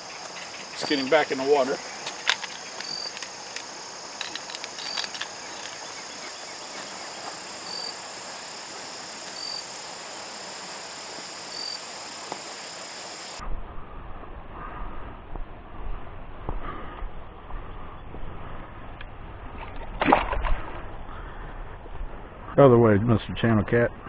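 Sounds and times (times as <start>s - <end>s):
insect chorus buzzing: 0.0s - 13.4s.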